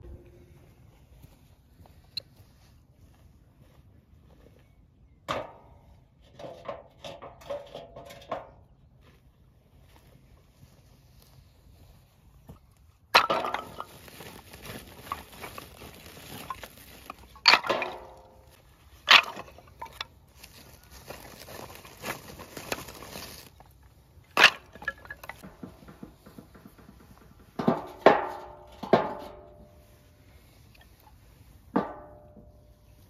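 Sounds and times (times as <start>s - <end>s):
plastic sack rustling: 13.2s - 25.8s
wood knocking in metal drum: 24.4s - 29.7s, 31.7s - 32.6s.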